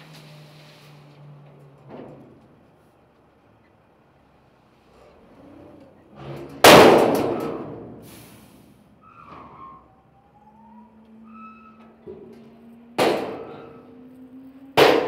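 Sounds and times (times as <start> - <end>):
metal tailgate clanging: 13.0 - 13.8.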